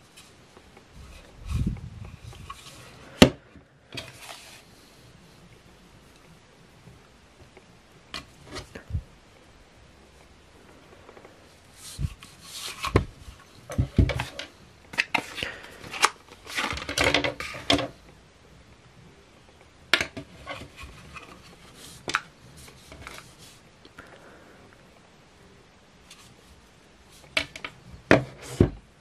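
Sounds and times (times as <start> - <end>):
rubbing and rustling: 0.0 - 6.2, 8.1 - 9.0, 10.1 - 18.1, 20.0 - 23.8, 26.0 - 29.0.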